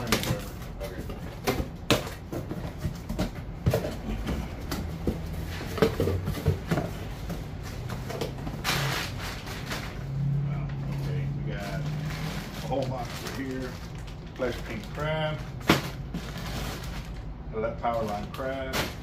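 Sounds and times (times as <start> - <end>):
packages knocking and clattering: 0.0 - 10.0, 10.9 - 19.0
packaging rustle: 11.0 - 19.0.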